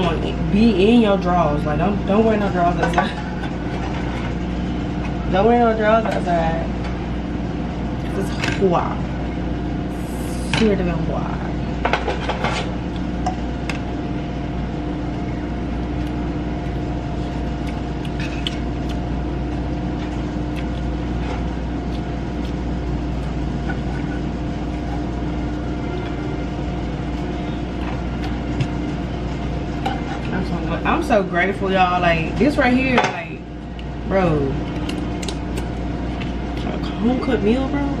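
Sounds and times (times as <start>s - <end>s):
electric motor humming: 12.7s - 37.9s.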